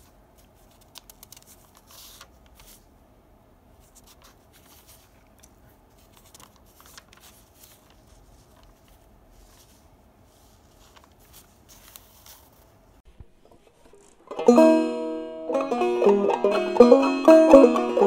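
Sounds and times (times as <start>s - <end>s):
paper pages rustling: 0.0s - 3.0s, 3.7s - 14.2s.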